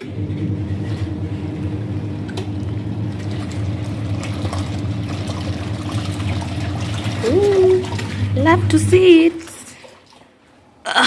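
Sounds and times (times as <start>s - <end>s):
washing machine motor hum: 0.0s - 10.8s
water sloshing: 0.3s - 10.8s.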